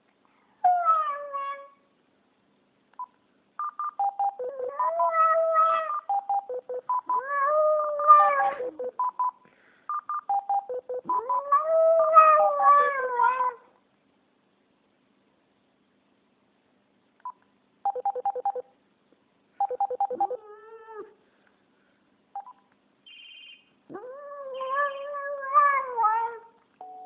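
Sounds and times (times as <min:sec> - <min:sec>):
dog howling: 0:07.2 - 0:08.6, 0:11.2 - 0:13.6
phone keypad beeps: 0:09.9 - 0:11.4, 0:17.2 - 0:18.6, 0:19.6 - 0:20.4, 0:22.4 - 0:23.6.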